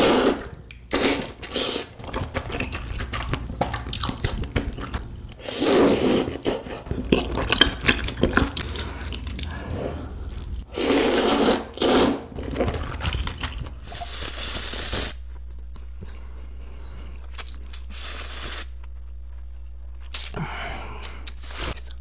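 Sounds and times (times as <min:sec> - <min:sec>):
noodles slurping: 0:00.0 - 0:15.2
wet chewing and lip-smacking: 0:00.4 - 0:05.4, 0:06.3 - 0:10.7.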